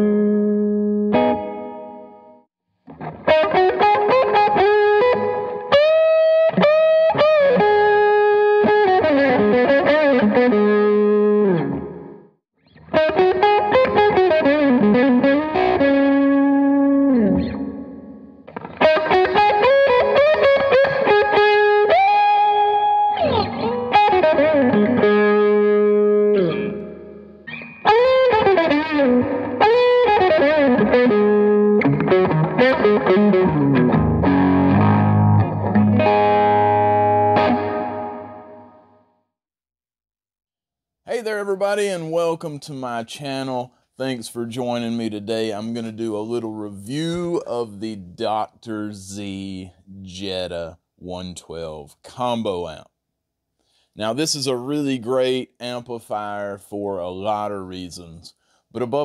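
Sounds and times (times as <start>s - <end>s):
electric guitar lead phrases: 0.0s - 39.0s.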